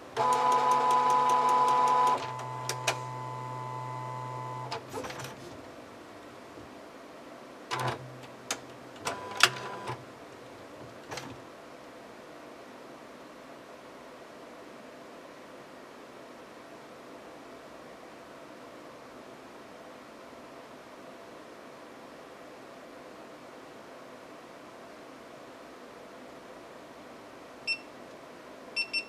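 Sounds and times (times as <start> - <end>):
printer clicks: 0.2 - 3.4, 7.7 - 10.0
printer motor whine: 0.2 - 5.4, 9.0 - 10.0.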